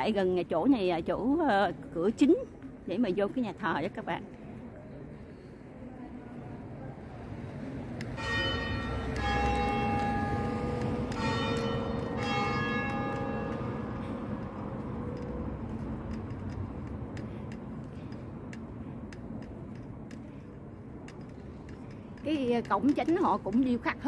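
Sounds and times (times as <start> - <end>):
church bell ringing: 8.2 - 15.5.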